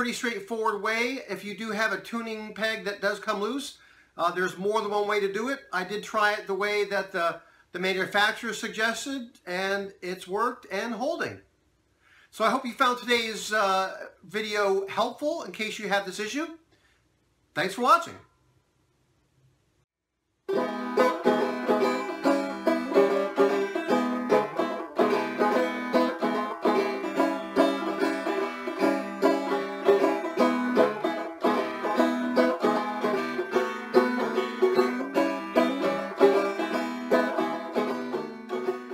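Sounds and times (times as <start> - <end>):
banjo picking: 20.5 - 38.9.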